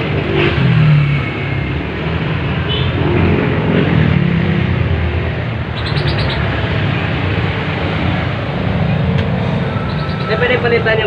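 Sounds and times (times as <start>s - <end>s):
traffic rumble: 0.0s - 11.0s
high chirps: 5.7s - 6.6s, 9.6s - 10.6s.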